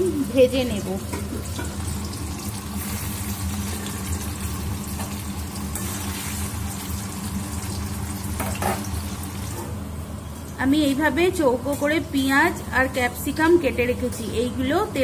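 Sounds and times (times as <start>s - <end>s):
cheese sizzling in hot oil: 0.2s - 9.6s.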